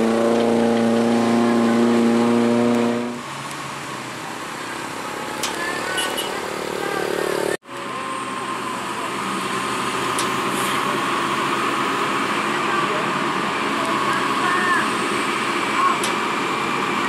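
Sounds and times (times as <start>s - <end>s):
high whine: 0.0s - 3.3s
excavator diesel engines: 0.0s - 17.0s.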